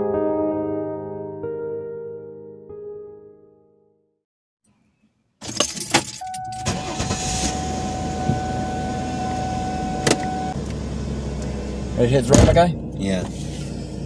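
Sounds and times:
keys jangling: 0:05.4 - 0:06.7
car engine humming: 0:06.1 - 0:14.0.

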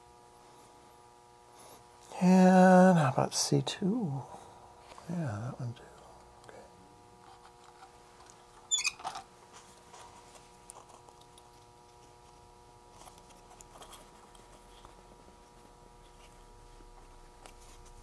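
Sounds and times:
faint steady hum: 0:00.0 - 0:18.0
scratchy rustle: 0:09.5 - 0:18.0.

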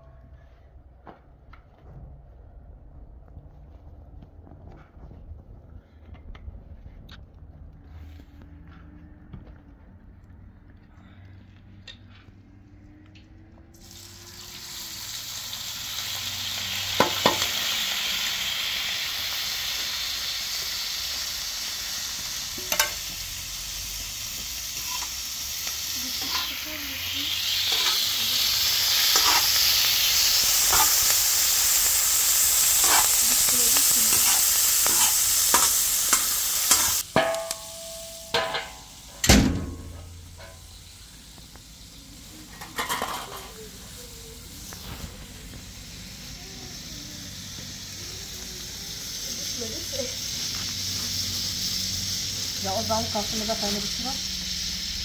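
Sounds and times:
onions sizzling on griddle: 0:13.7 - 0:55.0
metal spatula scraping and tapping: 0:22.6 - 0:23.0, 0:24.8 - 0:25.2, 0:26.2 - 0:26.5, 0:27.7 - 0:28.0, 0:29.1 - 0:29.6, 0:30.7 - 0:31.0, 0:32.8 - 0:38.8, 0:42.6 - 0:43.5
metal cover clanking: 0:27.7 - 0:28.0, 0:34.9 - 0:40.6, 0:42.6 - 0:43.5.

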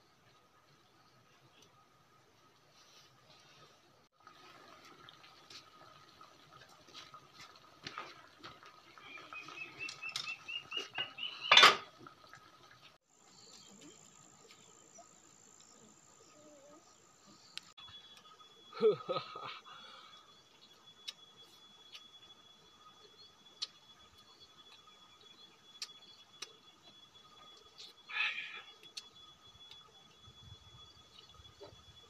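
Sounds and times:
wood fire crackling: 0:04.2 - 0:11.4
bird chirping: 0:09.0 - 0:11.6
steady high whine: 0:17.0 - 0:32.0.

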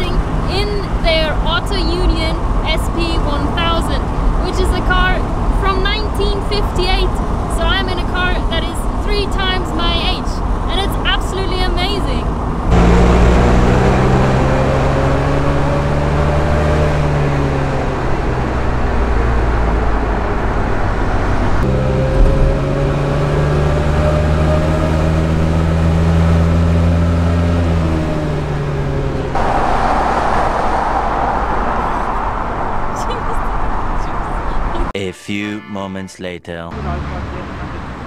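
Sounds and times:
rushing wind and road noise: 0:00.0 - 0:35.0.

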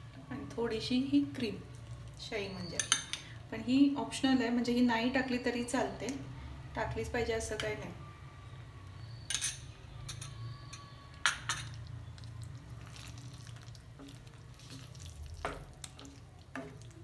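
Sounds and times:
spatula stirring thick gravy: 0:12.1 - 0:17.0.

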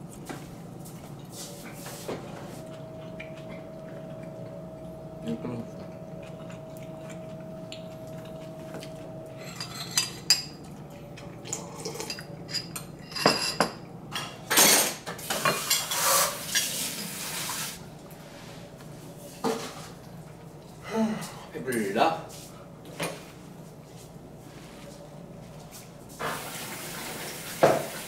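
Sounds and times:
spoon and chopsticks clinking on bowls: 0:08.3 - 0:10.6.

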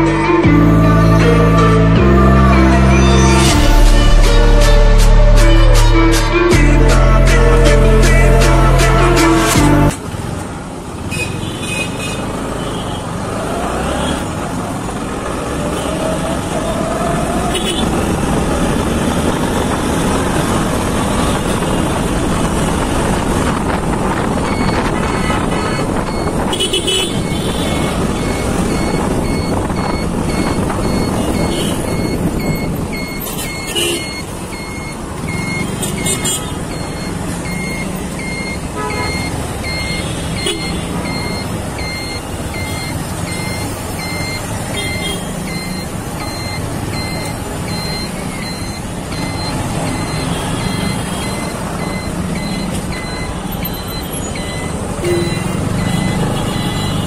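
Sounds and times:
high electronic beep: 0:24.4 - 0:26.4, 0:27.2 - 0:56.9.

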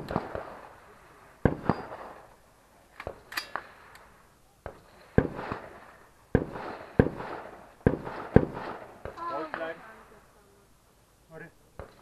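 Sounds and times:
rifle shots echoing: 0:00.0 - 0:02.4, 0:03.0 - 0:09.7.

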